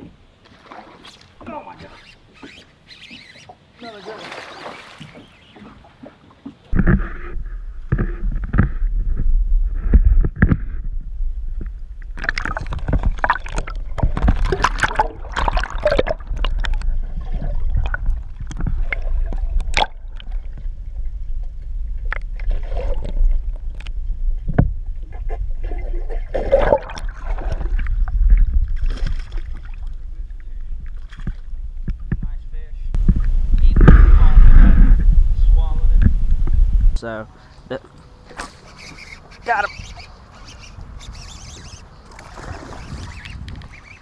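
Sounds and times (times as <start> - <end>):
fish splashing at the surface: 4.0 - 5.2
steady low rumble: 6.7 - 37.0.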